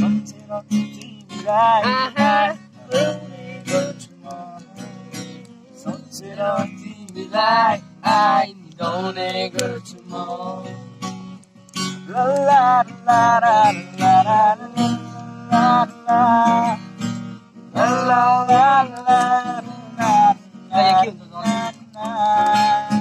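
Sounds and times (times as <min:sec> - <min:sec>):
person singing: 0:00.0 - 0:10.8, 0:12.1 - 0:17.0, 0:17.7 - 0:23.0
acoustic guitar strumming: 0:00.0 - 0:23.0.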